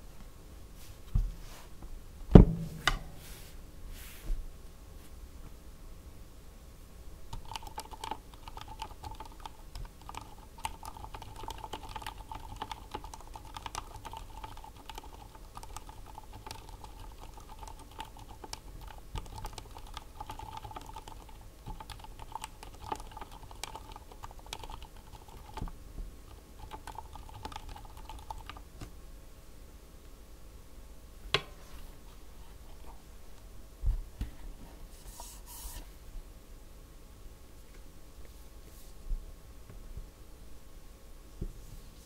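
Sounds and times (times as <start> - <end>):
quiet keyboard typing: 7.3 - 28.8.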